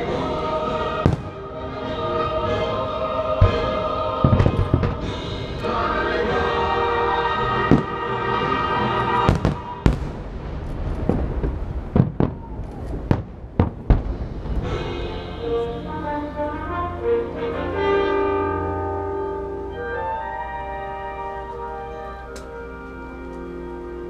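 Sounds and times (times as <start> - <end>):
orchestral music: 0.0 - 11.6, 13.9 - 24.0
fireworks bangs: 0.8 - 2.2, 3.2 - 15.6
low rumble: 1.0 - 16.8.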